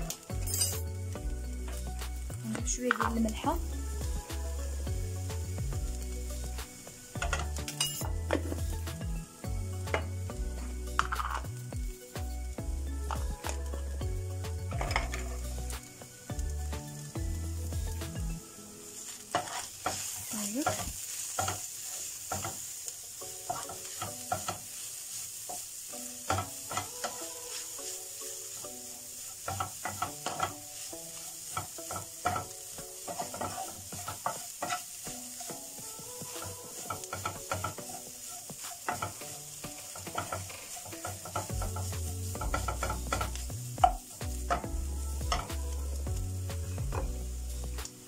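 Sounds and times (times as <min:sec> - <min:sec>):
chicken sizzling: 0:00.0 - 0:48.0
spatula scraping frying pan: 0:14.7 - 0:15.6, 0:19.0 - 0:45.7.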